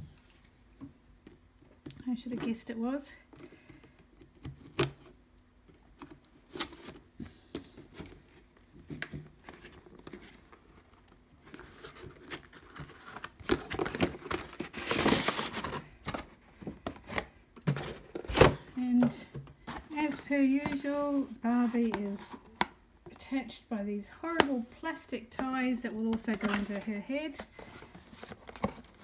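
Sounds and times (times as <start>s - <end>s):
cardboard rustling and tearing: 9.4s - 18.6s
clicks and taps of box handling: 18.9s - 20.9s.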